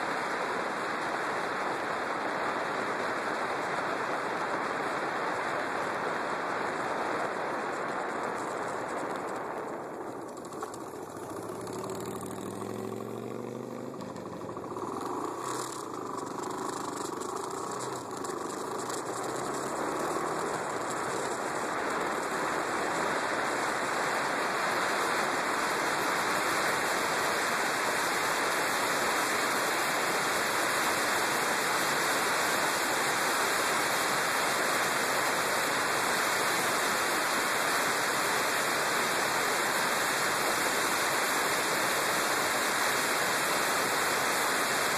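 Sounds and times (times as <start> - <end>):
motorcycle engine accelerating: 7.7 - 32.8.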